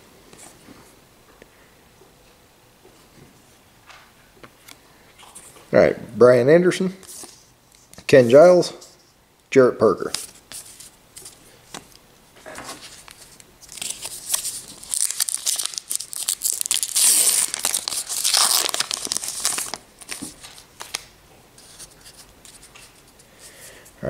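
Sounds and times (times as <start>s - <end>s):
wrapper tearing and crinkling: 12.9s - 21.1s.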